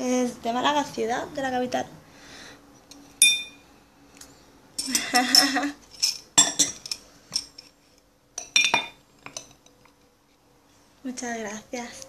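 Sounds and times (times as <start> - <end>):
tableware clinking and clattering: 3.2 - 3.6, 4.8 - 7.8, 8.4 - 9.8.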